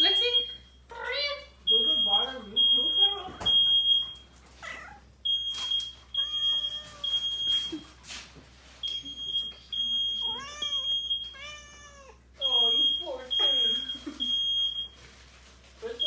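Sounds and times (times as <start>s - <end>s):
smoke detector beeping: 0.0s - 0.9s, 1.6s - 4.4s, 5.2s - 8.0s, 8.8s - 11.7s, 12.4s - 15.0s
cat meowing loudly: 6.2s - 7.2s, 10.3s - 12.2s.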